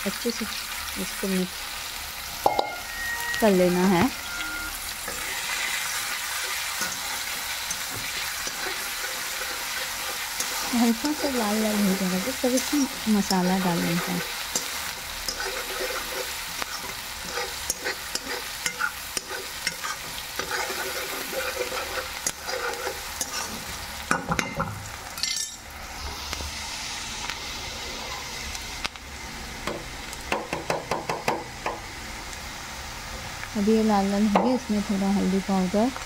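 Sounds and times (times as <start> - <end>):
onions sizzling in oil: 0.0 - 36.0
metal spatula scraping pan: 13.8 - 23.6.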